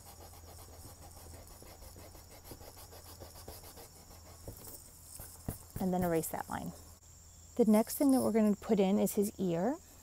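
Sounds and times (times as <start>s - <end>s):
pencil scratching on paper: 0.0s - 6.4s.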